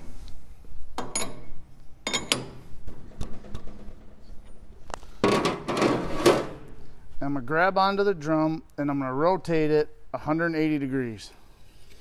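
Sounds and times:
metal clinks and knocks: 1.0 - 4.1
metal scraping: 5.2 - 6.7.

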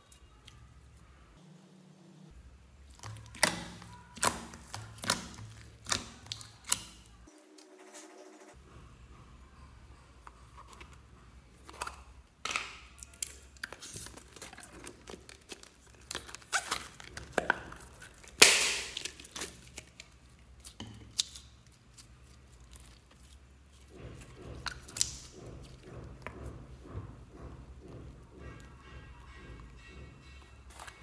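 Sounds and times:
slime sticky crackles: 2.8 - 7.3.

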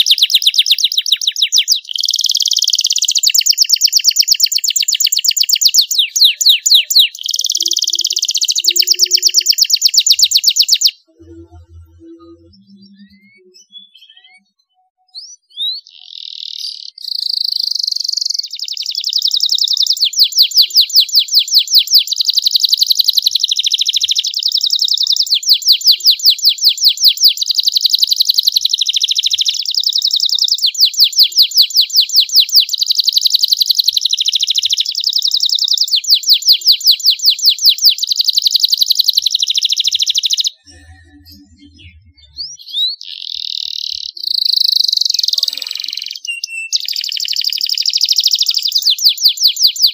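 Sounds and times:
canary singing trills: 0.0 - 49.9
short bird chirps: 0.0 - 49.9.

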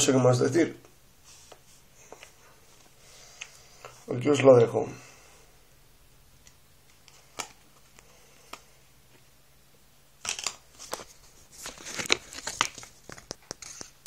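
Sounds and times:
rustling: 10.2 - 14.0.

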